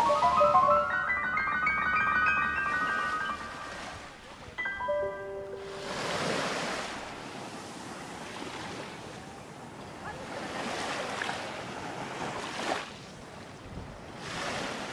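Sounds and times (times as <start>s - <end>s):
sea surf washing in: 0.0s - 9.1s.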